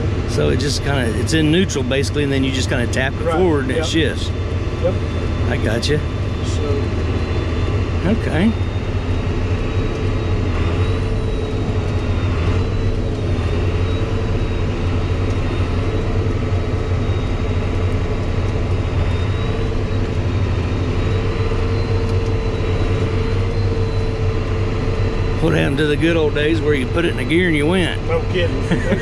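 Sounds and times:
tractor diesel engine from cab: 0.0s - 29.0s.

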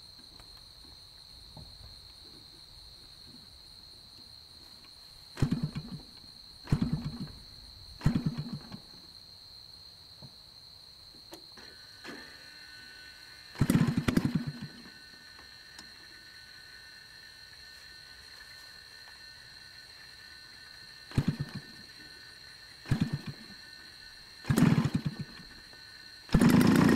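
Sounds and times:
high insect drone: 0.0s - 26.9s
model plane engine popping: 5.4s - 7.4s, 8.0s - 8.9s, 13.5s - 16.2s, 21.1s - 22.0s, 22.8s - 23.6s, 24.4s - 26.9s.

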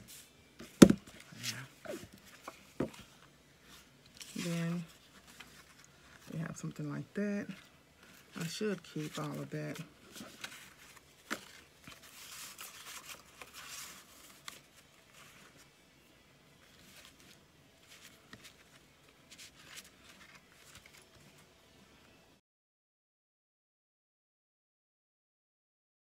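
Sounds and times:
paper tags rustling and sliding: 0.0s - 6.4s, 7.5s - 15.7s, 16.6s - 21.5s.

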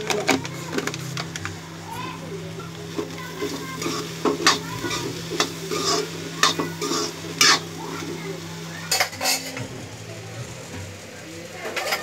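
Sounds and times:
vegetables frying in light sizzle: 0.0s - 12.0s
metal spatula scraping metal pan: 3.8s - 7.6s.

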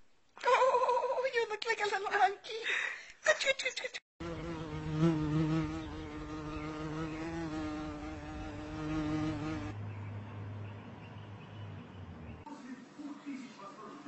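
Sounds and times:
flying insect buzzing: 4.2s - 9.8s.

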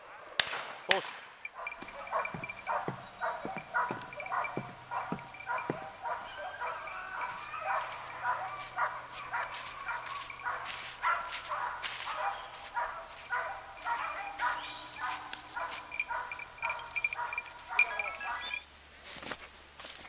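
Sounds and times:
dog yipping and whining: 1.6s - 10.4s.

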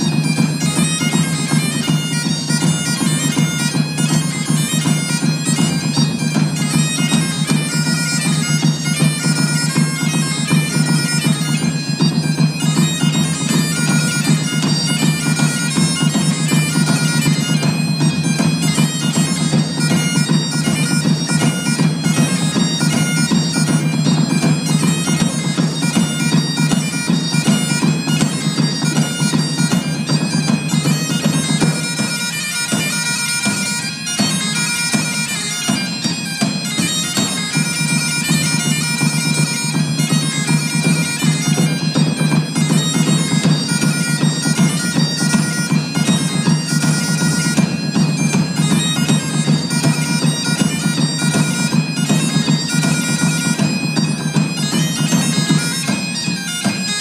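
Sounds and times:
bagpipes playing: 0.0s - 57.0s
drums beating: 0.0s - 57.0s.

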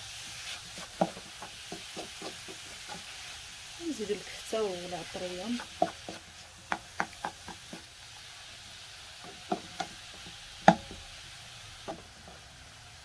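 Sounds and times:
vegetables sizzling: 0.0s - 13.0s.

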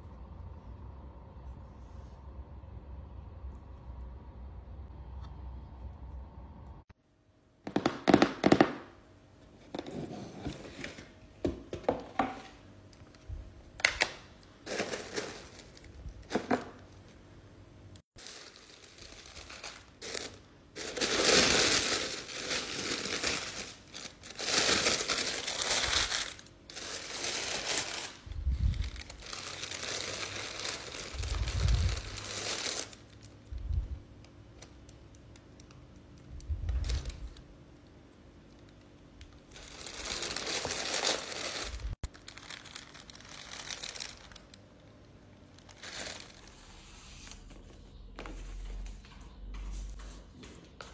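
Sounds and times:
tissue paper rustling: 14.6s - 16.3s, 18.1s - 33.2s, 39.5s - 44.6s, 45.6s - 47.6s.

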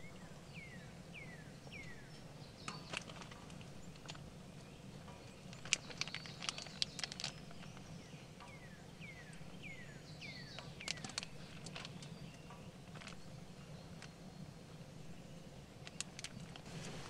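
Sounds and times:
meat frying crackling pops: 2.6s - 4.4s, 5.0s - 8.6s, 10.4s - 14.2s, 15.8s - 17.0s.

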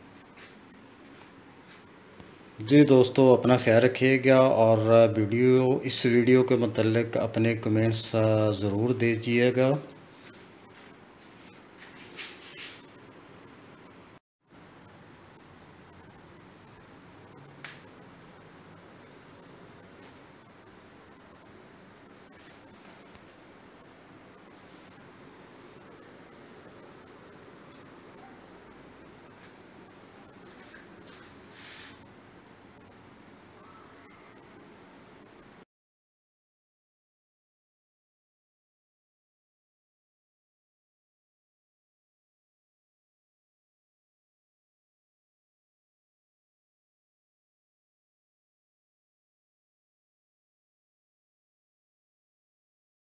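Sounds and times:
high-pitched insect trill: 0.0s - 35.6s.

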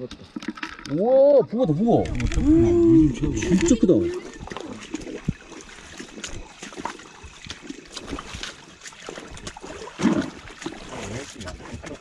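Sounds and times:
stream water trickling: 0.0s - 12.0s
splashes and knocks in water: 3.2s - 12.0s.

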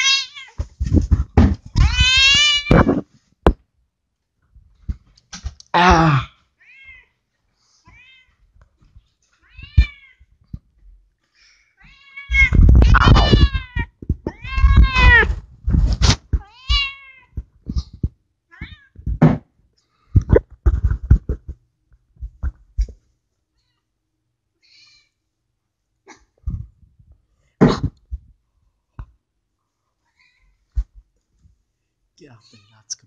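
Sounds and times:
cat meowing: 0.0s - 0.6s, 1.8s - 3.0s, 9.5s - 10.3s, 11.8s - 15.4s, 16.4s - 17.4s
short knocks and thumps: 0.6s - 3.6s, 12.4s - 19.5s, 20.2s - 21.6s.

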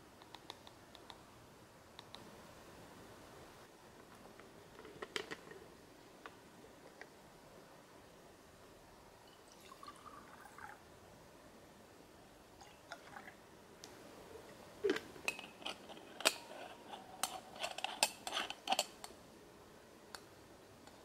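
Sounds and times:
metal coffee gear clinking: 15.3s - 19.0s.

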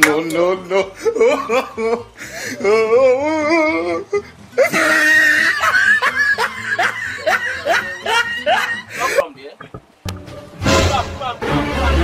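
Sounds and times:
men laughing heartily: 0.6s - 9.3s.

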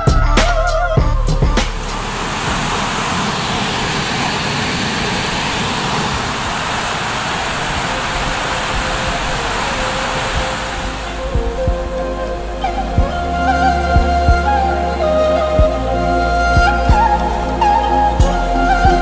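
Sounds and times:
music: 0.0s - 2.1s, 10.0s - 19.0s
waterfall rushing: 1.8s - 19.0s.

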